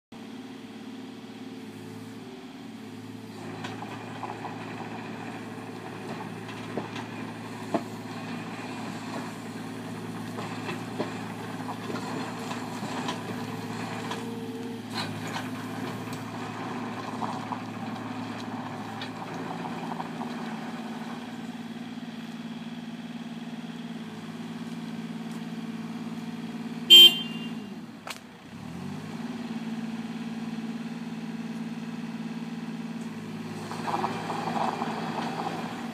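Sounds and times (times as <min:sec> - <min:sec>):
excavator diesel engine running: 0:00.2 - 0:35.9
tracks over gravel: 0:24.5 - 0:26.3
loud horn beep: 0:26.9 - 0:27.7.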